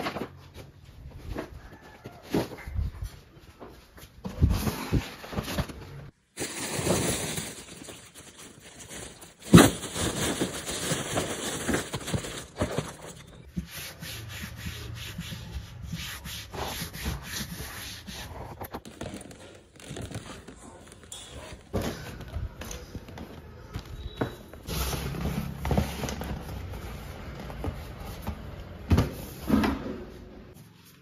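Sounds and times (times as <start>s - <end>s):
plastic bags and clothes rustling: 3.8s - 13.5s, 18.0s - 28.9s.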